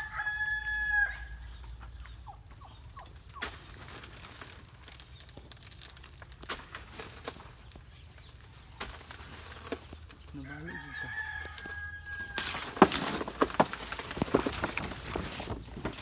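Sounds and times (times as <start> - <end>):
rooster crowing: 0.0 - 1.4, 10.4 - 12.7.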